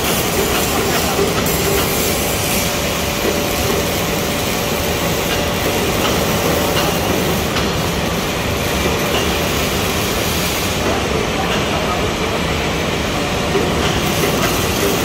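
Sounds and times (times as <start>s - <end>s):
loud steady machinery noise: 0.0s - 15.0s.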